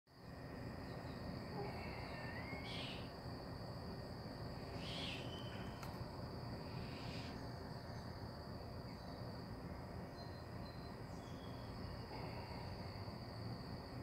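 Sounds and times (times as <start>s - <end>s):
insect chorus drone: 0.1s - 14.0s.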